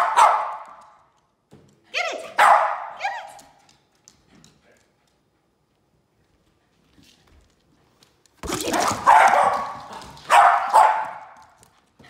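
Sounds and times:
dog barking loudly: 0.0s - 0.7s, 2.3s - 3.0s, 8.8s - 11.4s.

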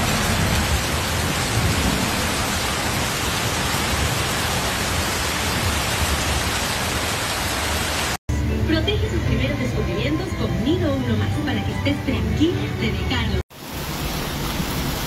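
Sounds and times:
heavy rain on flooded street: 0.0s - 8.2s, 13.5s - 15.0s.

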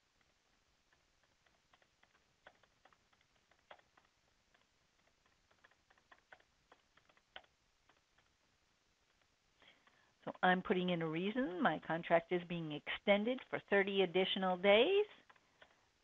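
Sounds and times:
keyboard typing: 0.9s - 8.4s, 15.2s - 15.8s.

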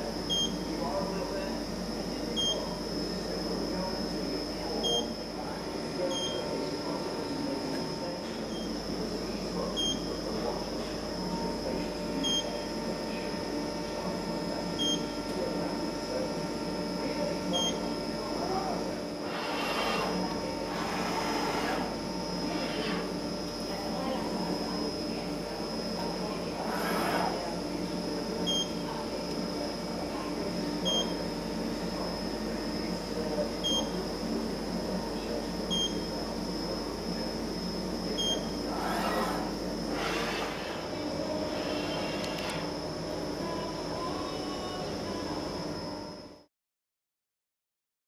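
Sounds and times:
steady machine hum: 0.0s - 46.5s.

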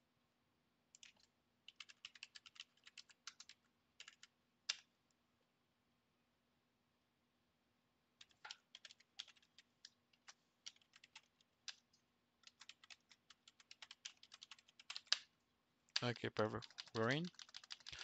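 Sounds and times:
keyboard typing: 1.0s - 4.8s, 8.2s - 15.3s, 15.9s - 18.0s.

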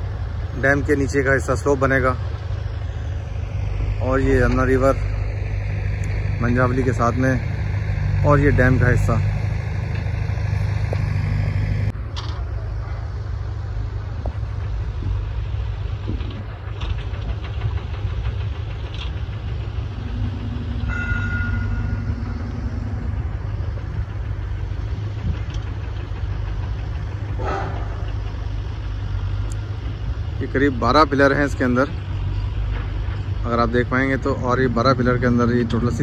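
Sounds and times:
engine running: 0.0s - 36.0s
short steady tone: 20.1s - 23.4s.

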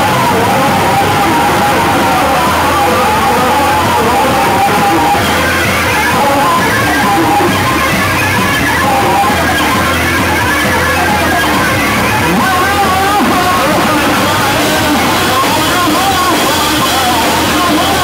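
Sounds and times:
drum kit: 0.0s - 18.0s
electric bass: 0.0s - 18.0s.

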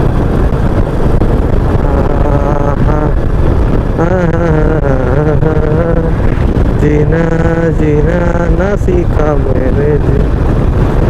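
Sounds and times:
motorcycle engine cruising: 0.0s - 11.0s
wind rushing on microphone: 0.0s - 11.0s
man singing: 1.8s - 3.2s, 3.9s - 6.2s, 6.8s - 10.3s.

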